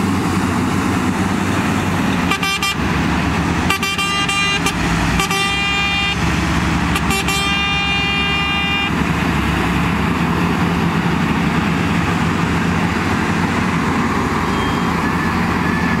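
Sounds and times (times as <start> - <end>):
diesel engines running: 0.0 - 16.0
vehicle horn blasts: 2.3 - 2.8, 3.7 - 6.2, 6.9 - 9.0.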